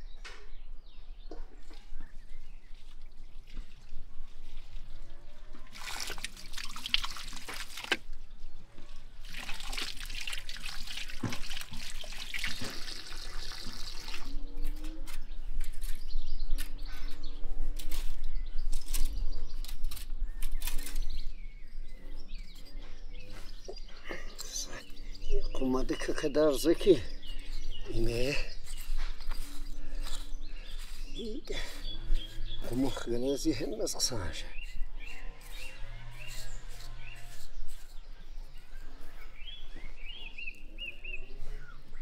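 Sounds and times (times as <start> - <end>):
birds chirping: 0.0 - 42.0
water running and splashing: 5.7 - 8.1, 9.2 - 14.4
rustles and small knocks: 11.1 - 12.9.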